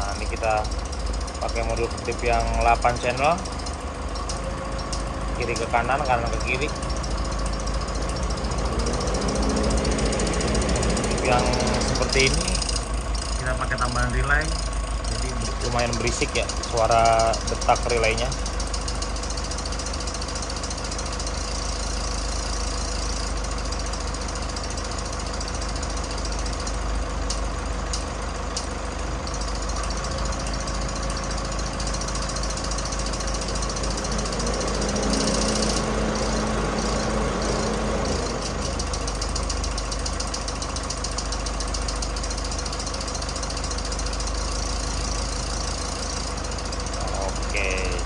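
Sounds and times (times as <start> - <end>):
loud hum: 0.0 - 16.6, 29.2 - 40.5
car engine idling: 0.0 - 48.0
relays clicking rapidly: 0.0 - 48.0.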